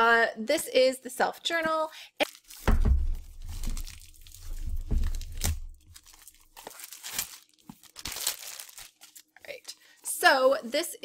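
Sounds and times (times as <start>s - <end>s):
shrink wrap crinkling and tearing: 2.2s - 10.2s
low rumble of box handling: 2.7s - 6.0s.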